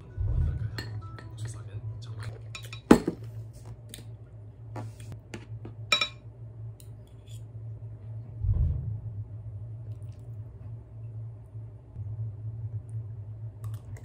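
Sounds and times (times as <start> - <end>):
steady low hum: 0.0 - 14.0
utensils clinking on ceramic dish: 2.4 - 3.2, 5.9 - 6.2
soft low thud: 8.4 - 9.2.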